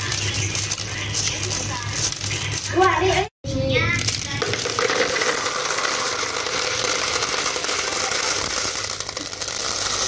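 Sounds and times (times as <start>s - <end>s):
glass marbles pouring into bucket: 4.4s - 10.0s.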